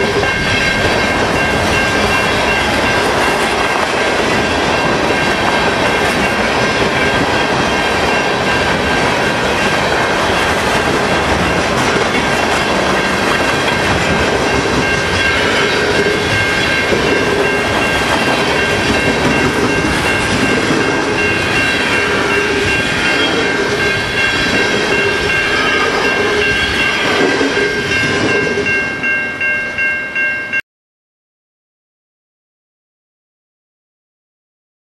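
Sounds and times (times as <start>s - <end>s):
high-pitched ringing: 0.0s - 3.6s, 11.3s - 30.6s
freight train wheels clacking: 0.0s - 29.9s.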